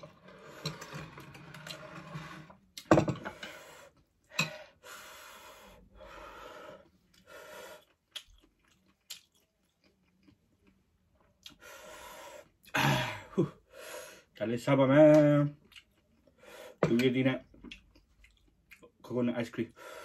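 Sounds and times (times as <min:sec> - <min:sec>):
person chewing and eating: 0:06.8 - 0:11.6, 0:15.6 - 0:19.0.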